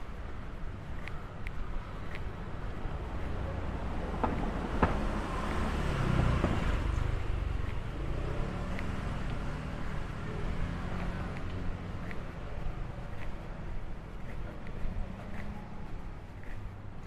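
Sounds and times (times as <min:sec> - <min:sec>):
steady traffic noise: 0:00.0 - 0:17.0
vehicle passing close by: 0:04.1 - 0:12.2.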